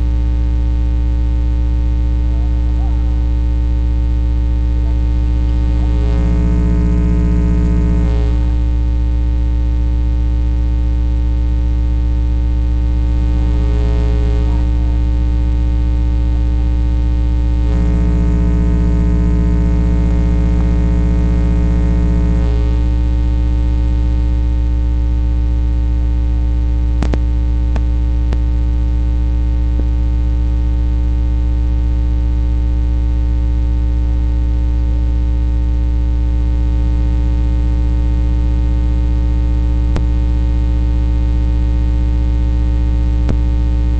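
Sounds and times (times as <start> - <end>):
electrical mains hum: 0.0 - 30.1.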